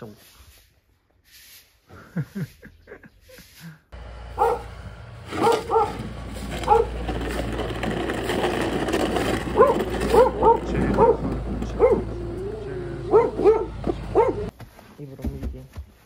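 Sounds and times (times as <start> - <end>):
snow pusher scraping concrete: 4.0 - 14.5.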